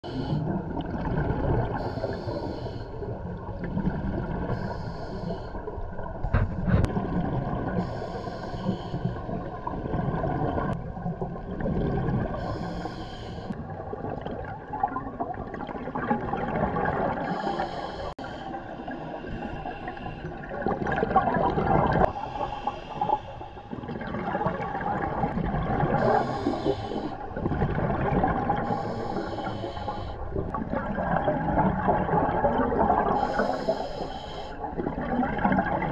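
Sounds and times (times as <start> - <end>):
exhaled bubbles rushing: 0.4 - 1.9, 3.2 - 4.6, 6.0 - 7.9, 9.2 - 12.4, 13.6 - 17.2, 19.2 - 22.1, 23.7 - 26.3, 27.2 - 28.8, 30.3 - 33.2, 34.6 - 35.9
diver breathing through regulator: 1.7 - 3.2, 4.5 - 5.7, 7.8 - 9.4, 12.3 - 13.6, 17.2 - 20.4, 22.0 - 23.9, 25.9 - 27.3, 28.5 - 30.4, 33.0 - 34.7.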